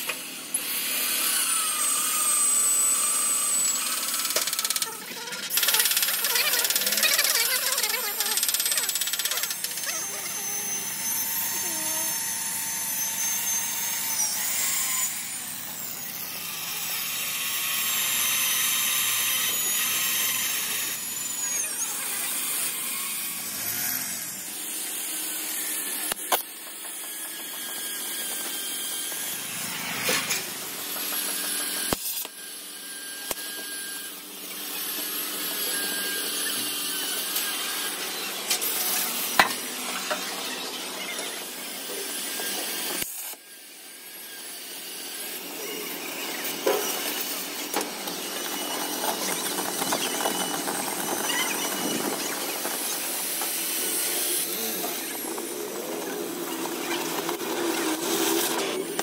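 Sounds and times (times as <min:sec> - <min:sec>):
power tools hissing: 0:00.6 - 0:16.0.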